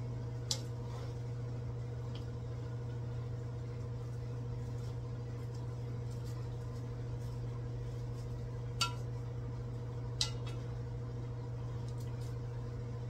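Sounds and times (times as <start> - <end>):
low hum: 0.0 - 13.0
frying pan clinking: 8.8 - 9.1, 10.2 - 10.6.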